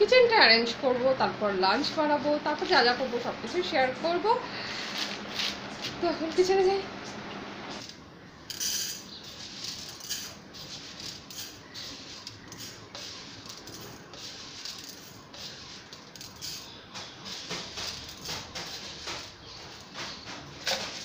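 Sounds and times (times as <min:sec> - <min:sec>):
kitchen utensils clinking: 0:08.5 - 0:14.0, 0:14.6 - 0:21.0.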